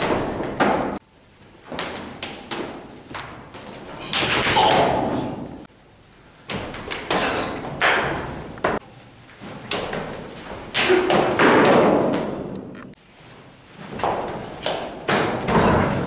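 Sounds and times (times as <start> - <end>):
feet scuffling: 6.4 - 16.0
bodies falling on floor: 9.4 - 12.5, 13.2 - 16.0.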